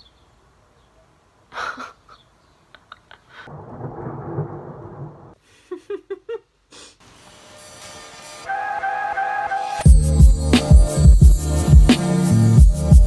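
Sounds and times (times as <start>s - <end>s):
thunder rumble: 3.5s - 5.4s.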